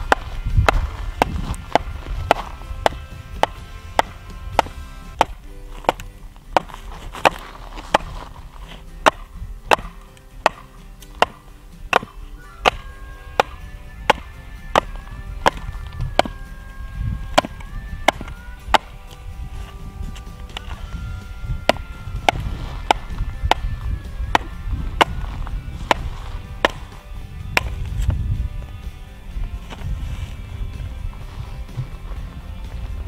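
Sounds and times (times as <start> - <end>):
stick knocking on knife spine: 0.0 - 8.1, 9.0 - 16.4, 17.4 - 19.2, 27.6 - 27.8
background music with held tones: 0.0 - 33.0.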